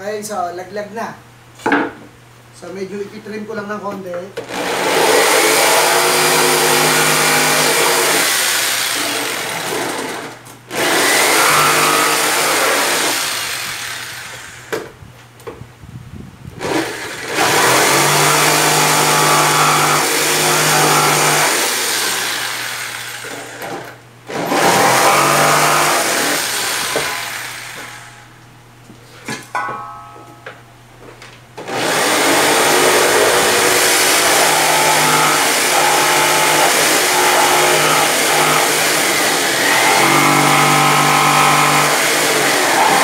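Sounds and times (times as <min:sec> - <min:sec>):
jigsaw cutting wood: 0:04.4 - 0:14.8, 0:16.6 - 0:28.1, 0:31.6 - 0:43.0.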